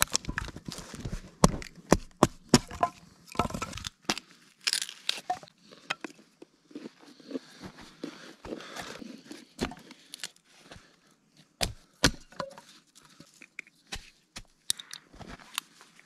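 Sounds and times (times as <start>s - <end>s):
hatchet splitting wood: 1.4s - 4.2s, 11.6s - 12.6s.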